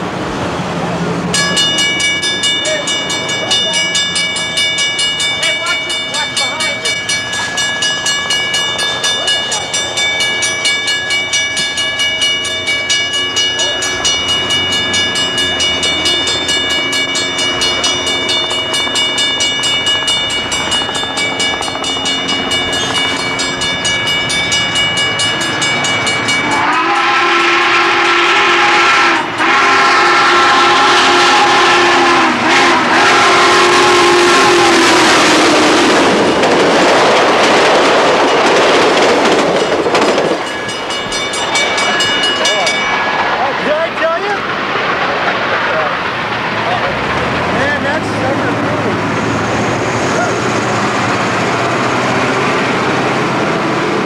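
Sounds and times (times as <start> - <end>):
steam locomotive exhaust beat: 0.0 - 54.0
steam whistle blasts: 26.4 - 36.0.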